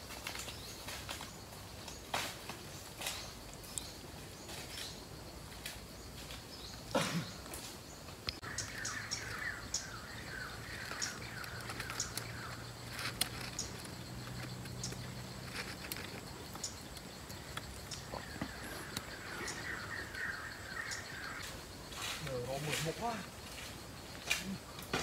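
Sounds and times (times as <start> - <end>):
parakeets chirping: 8.4 - 21.5.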